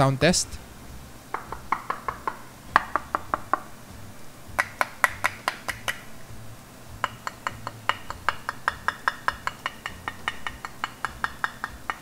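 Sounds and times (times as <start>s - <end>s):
fingers tapping glass lid: 1.3s - 3.7s, 4.6s - 6.1s, 7.0s - 12.0s.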